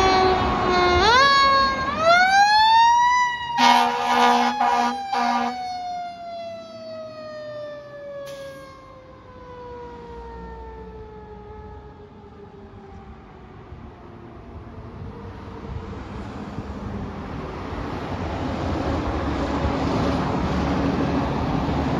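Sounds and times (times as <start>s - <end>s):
fire engine siren wailing: 0.0s - 21.9s
air horn blasts: 3.6s - 5.7s.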